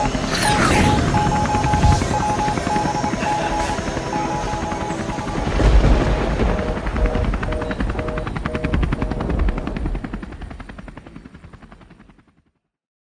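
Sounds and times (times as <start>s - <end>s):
two-note tone: 0.0s - 9.2s.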